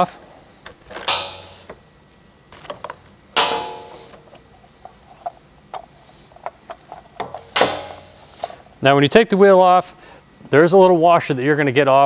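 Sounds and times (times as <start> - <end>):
metal clank: 0.9 - 1.8, 3.4 - 4.4, 7.4 - 8.3.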